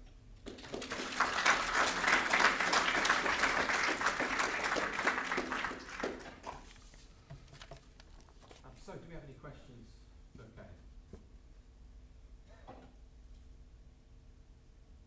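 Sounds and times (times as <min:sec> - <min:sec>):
audience applauding: 0:00.4 - 0:06.8.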